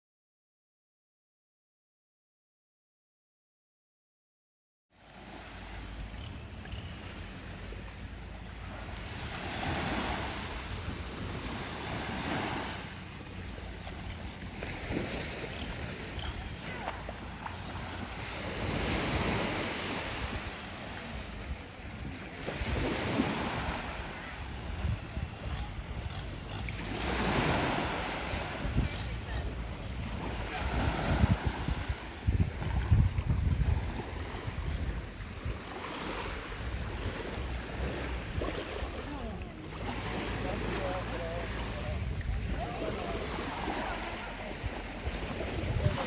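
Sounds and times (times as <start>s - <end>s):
small waves washing onto beach: 4.9s - 46.0s
wind buffeting microphone: 21.3s - 26.5s, 27.5s - 35.7s, 41.8s - 43.6s.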